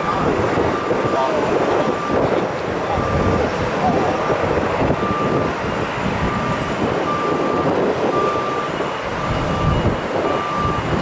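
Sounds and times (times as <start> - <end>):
reversing alarm beeping: 0.0 - 11.0
vehicle rumble: 0.0 - 11.0.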